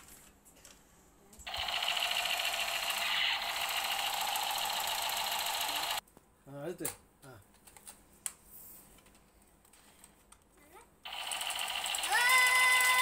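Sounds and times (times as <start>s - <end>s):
toy machine gun rattle: 1.5s - 6.0s, 11.1s - 13.0s.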